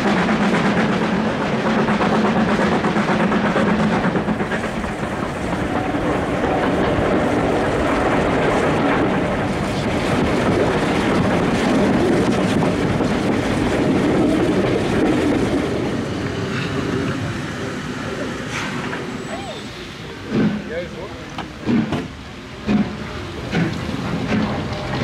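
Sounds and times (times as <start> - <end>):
train wheels rumbling over rails: 0.0 - 25.0.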